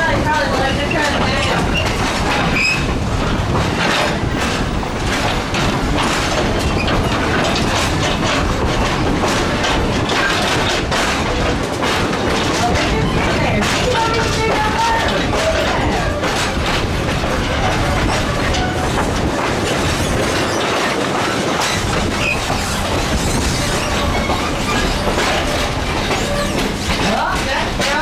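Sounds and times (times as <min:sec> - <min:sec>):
train wheels rumbling on rails: 0:00.0 - 0:28.0
wheels clicking and clattering: 0:00.0 - 0:28.0.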